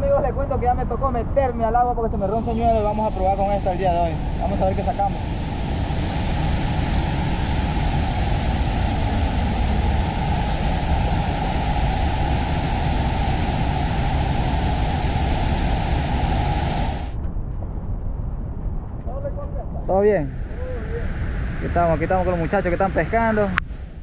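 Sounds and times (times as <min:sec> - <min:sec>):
waterfall rushing: 0:02.5 - 0:17.1.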